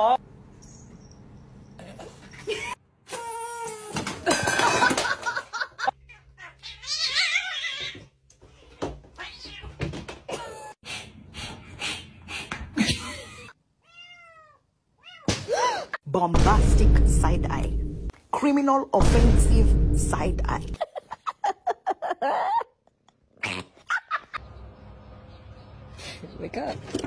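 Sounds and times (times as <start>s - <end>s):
cats meowing: 6.0s - 8.1s, 9.2s - 9.8s, 13.8s - 15.3s.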